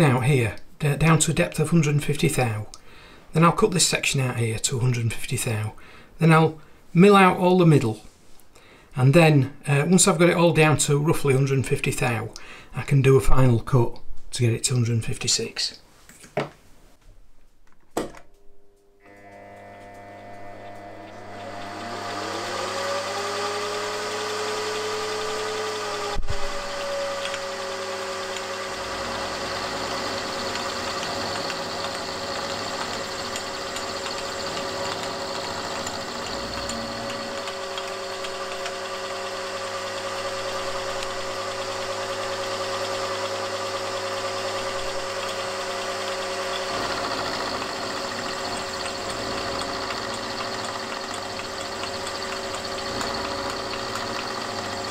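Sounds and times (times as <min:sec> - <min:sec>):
milling machine spindle whine: 0:19.1 - 0:54.9.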